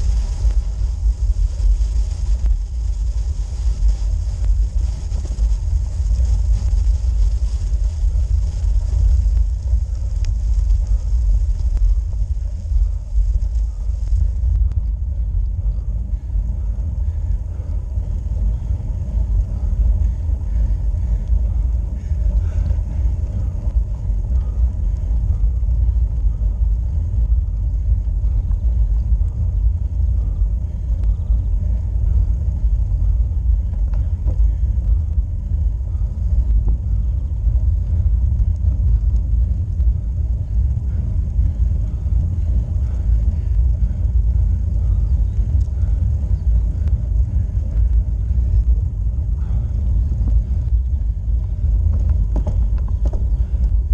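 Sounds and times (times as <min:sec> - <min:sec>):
high hiss: 0:00.0 - 0:26.6
road and wind rumble: 0:00.0 - 0:53.9.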